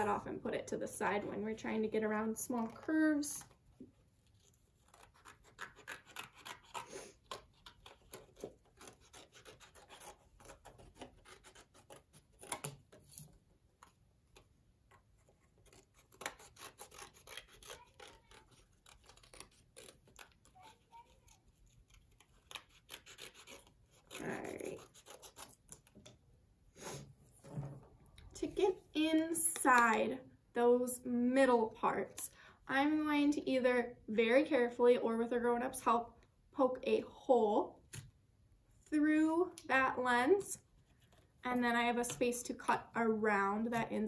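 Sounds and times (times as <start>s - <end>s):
scissors snipping cardboard: 4.8s - 26.2s.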